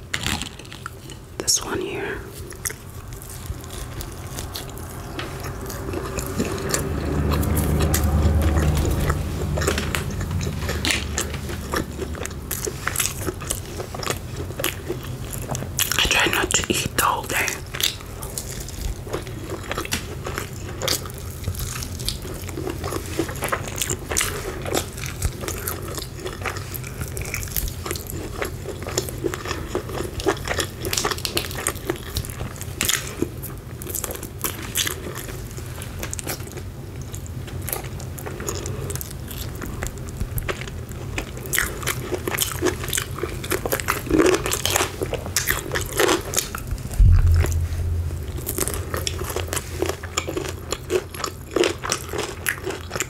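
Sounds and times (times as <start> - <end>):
crispy chicken crunching: 2.4 - 53.0
low thump: 46.7 - 49.6.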